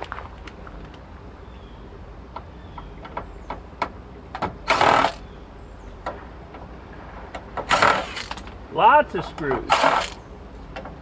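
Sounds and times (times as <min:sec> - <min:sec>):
cordless drill burst: 0:04.7 - 0:05.2, 0:07.7 - 0:08.4, 0:09.7 - 0:10.2.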